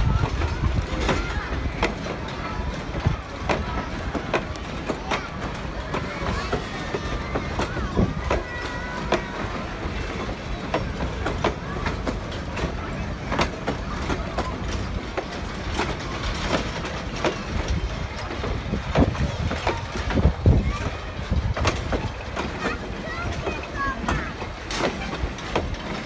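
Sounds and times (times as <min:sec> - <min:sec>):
low rumble of rolling coaches: 0:00.0 - 0:26.0
train wheels clicking over rail joints: 0:00.0 - 0:26.0.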